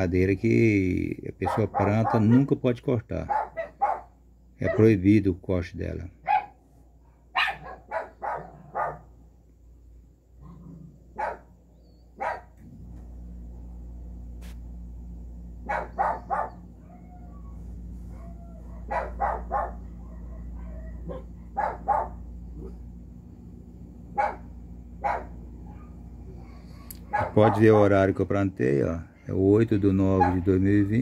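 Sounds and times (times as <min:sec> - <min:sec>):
steady low hum: 0:00.0 - 0:31.0
dog barking: 0:01.4 - 0:02.6, 0:03.3 - 0:04.9, 0:06.2 - 0:09.1, 0:11.2 - 0:11.5, 0:12.2 - 0:12.6, 0:15.6 - 0:16.7, 0:18.1 - 0:22.8, 0:24.1 - 0:27.8, 0:30.2 - 0:30.5.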